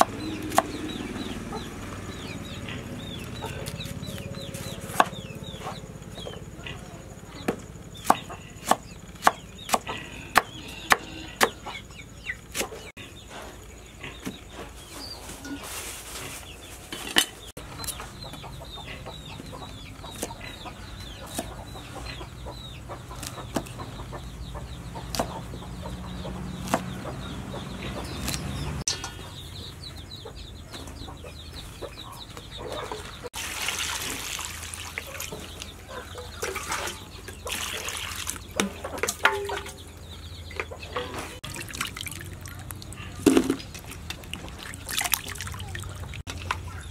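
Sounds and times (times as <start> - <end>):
chickens clucking: 0.0 - 33.4, 34.8 - 46.9
knife chopping on wooden board: 4.9 - 5.2, 25.1 - 25.4, 26.6 - 27.0
water splashing into steel bowl: 33.4 - 35.5, 36.4 - 39.7, 41.4 - 46.6.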